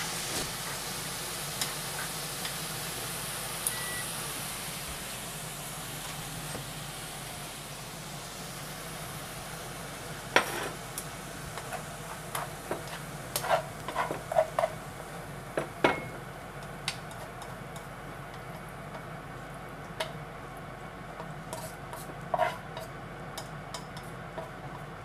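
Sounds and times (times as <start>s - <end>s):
food sizzling in a frying pan: 0.0s - 25.0s
chopsticks clicking and scraping pan: 11.6s - 14.8s, 21.2s - 24.9s.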